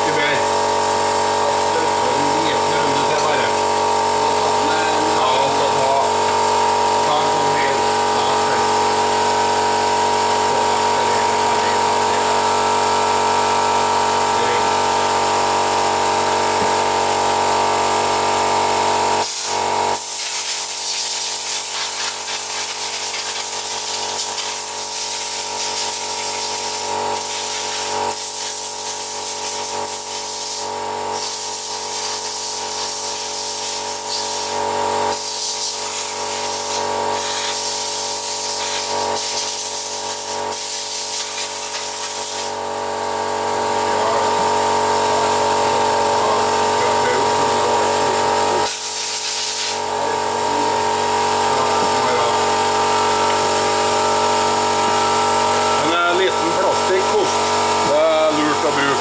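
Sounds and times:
steady hum: 0:00.0 - 0:40.5, 0:41.1 - 0:59.0
spray bottle hissing: 0:19.2 - 0:42.6, 0:48.6 - 0:49.8.

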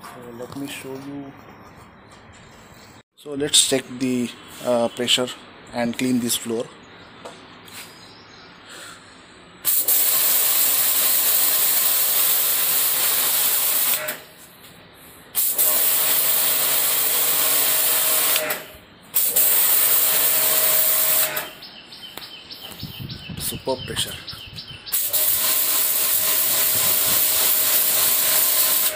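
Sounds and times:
pressure washer spraying concrete: 0:09.7 - 0:14.2, 0:15.4 - 0:18.6, 0:19.2 - 0:21.5, 0:24.9 - 0:28.9.

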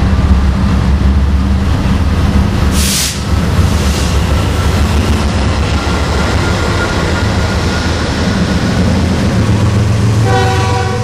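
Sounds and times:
diesel locomotives rumbling: 0:00.0 - 0:11.0
short hiss: 0:02.8 - 0:04.2.

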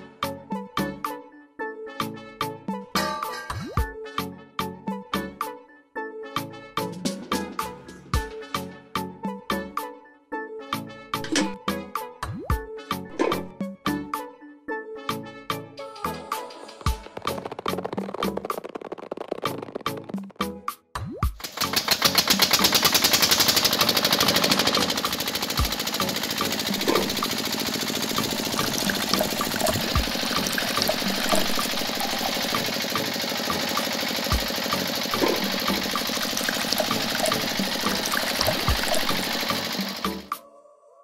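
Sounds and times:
small motor running: 0:21.4 - 0:40.3
toy crusher rattling: 0:21.4 - 0:40.3
juice splashing into cup: 0:28.2 - 0:32.7, 0:35.2 - 0:39.4.

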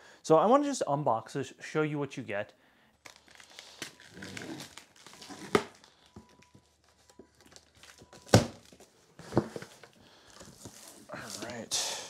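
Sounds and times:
plastic wrap rustling: 0:03.0 - 0:11.7.

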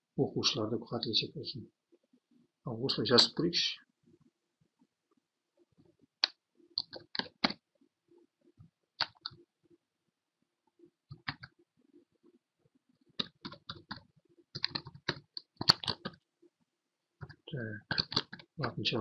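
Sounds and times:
keyboard typing: 0:06.2 - 0:07.6, 0:09.0 - 0:09.4, 0:11.1 - 0:11.6, 0:13.2 - 0:16.2, 0:17.2 - 0:18.8.

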